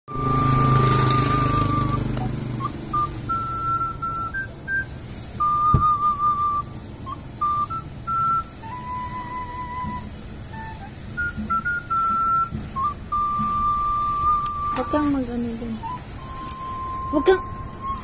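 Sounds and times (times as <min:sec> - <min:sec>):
motorcycle rumbling past: 0:00.1 - 0:09.9
flute melody: 0:00.1 - 0:18.0.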